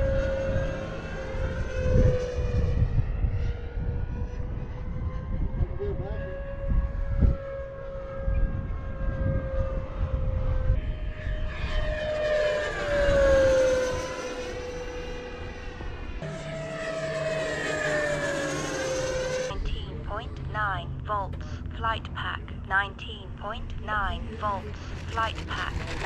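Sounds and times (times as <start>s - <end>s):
wind buffeting microphone: 0.0s - 16.2s
jet fan whine passing: 0.0s - 26.0s.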